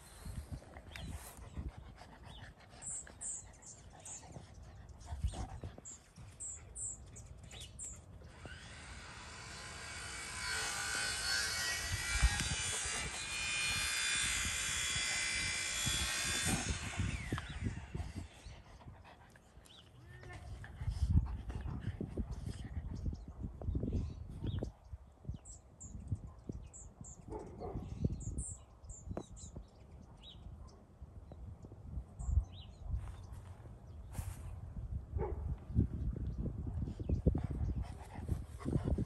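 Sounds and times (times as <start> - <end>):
steady whirring noise: 8.0 - 18.8.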